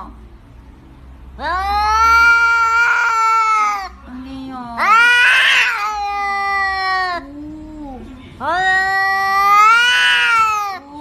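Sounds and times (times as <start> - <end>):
cat yowling: 1.4 - 4.0, 4.8 - 10.9.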